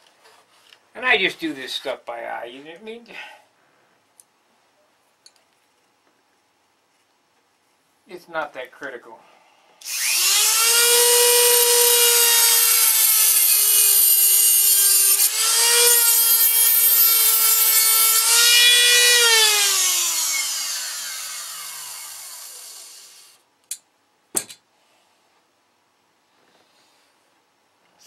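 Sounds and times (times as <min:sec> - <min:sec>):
rotary tool whining: 0:09.8 - 0:23.4.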